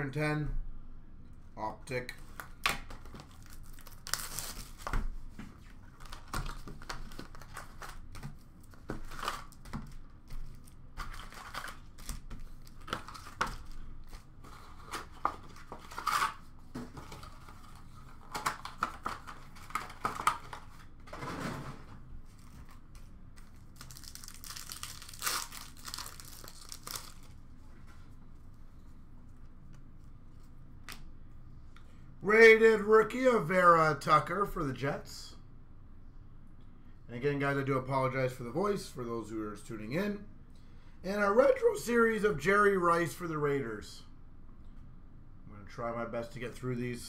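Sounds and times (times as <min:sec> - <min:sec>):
card packaging tearing: 0:02.9 - 0:05.0, 0:05.8 - 0:17.4, 0:23.4 - 0:27.4
foil packs rustling: 0:03.0 - 0:05.0, 0:05.8 - 0:27.4.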